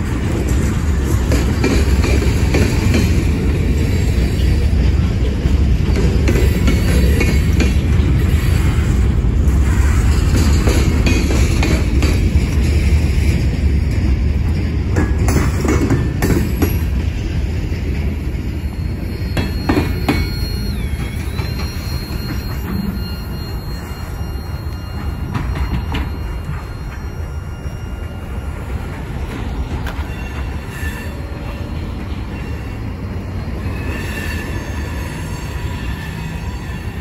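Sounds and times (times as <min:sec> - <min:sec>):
train cars clanking: 0:00.0 - 0:37.0
train wheels rumbling on rail: 0:00.0 - 0:37.0
high wheel squeal: 0:06.4 - 0:12.3, 0:18.0 - 0:37.0.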